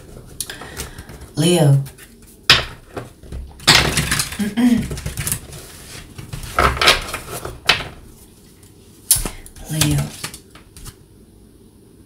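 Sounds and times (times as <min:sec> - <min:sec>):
cards being shuffled: 0:00.0 - 0:11.0.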